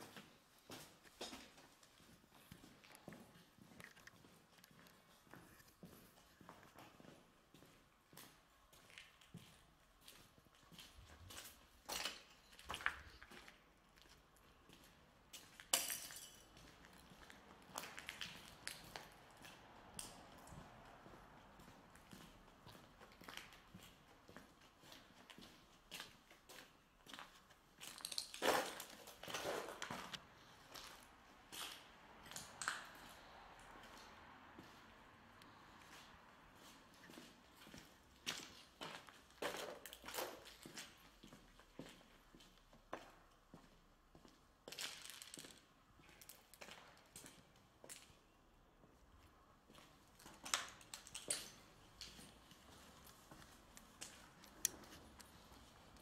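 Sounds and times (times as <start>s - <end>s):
footsteps crunching over rubble: 21.5s - 33.2s
footsteps on concrete: 33.8s - 44.4s, 49.7s - 56.0s.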